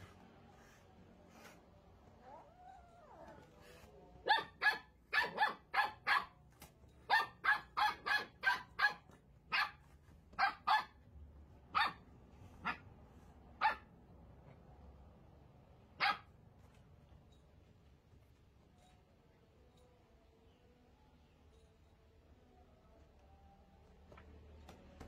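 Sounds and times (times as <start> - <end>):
puppy barking: 4.2 - 6.4, 7.0 - 11.0, 11.7 - 12.9, 13.6 - 13.9, 16.0 - 16.3.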